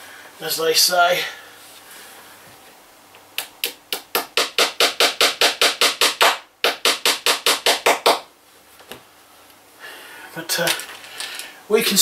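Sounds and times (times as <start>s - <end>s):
small hammer tapping a nail: 3.6s - 8.2s.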